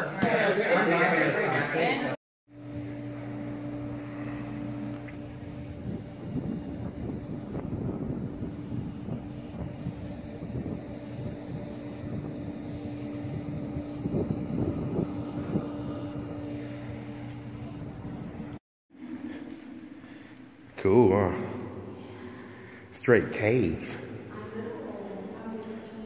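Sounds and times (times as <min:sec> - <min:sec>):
steady machine hum: 0:00.7 - 0:26.0
wind buffeting microphone: 0:05.2 - 0:18.6.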